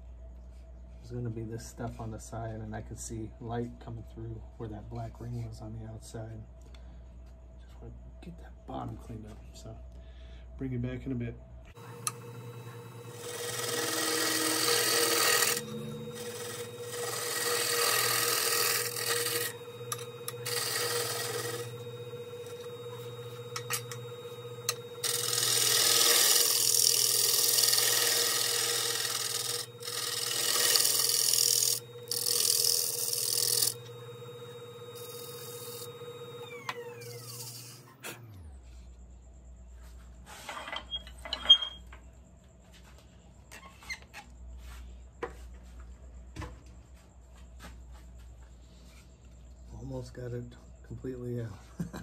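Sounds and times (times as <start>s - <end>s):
turning tool scraping wood: 11.8s - 37.8s
lathe motor humming: 11.8s - 38.5s.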